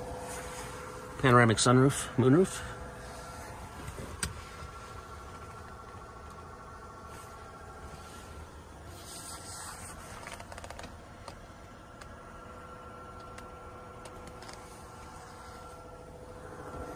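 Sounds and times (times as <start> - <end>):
faint rubbing and rustling: 0.0 - 1.5, 6.8 - 11.5
low steady hum: 0.0 - 16.9.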